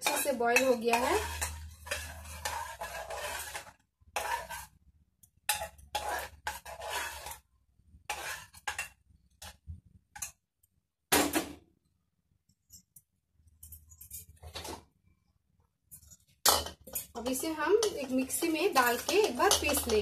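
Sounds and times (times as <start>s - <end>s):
metal ladle scraping a pot: 0.0s - 4.8s, 5.5s - 9.6s, 15.9s - 20.0s.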